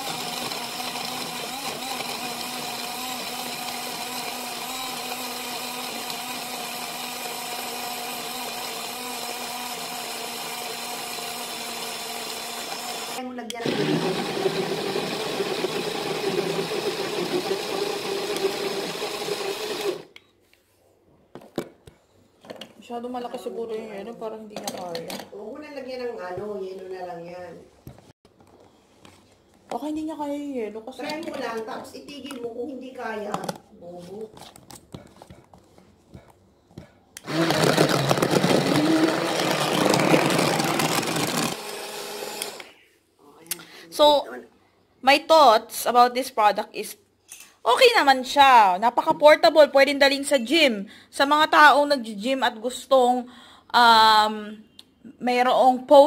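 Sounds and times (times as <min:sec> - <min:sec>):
small blender motor running: 0:00.0 - 0:20.1, 0:37.2 - 0:42.7.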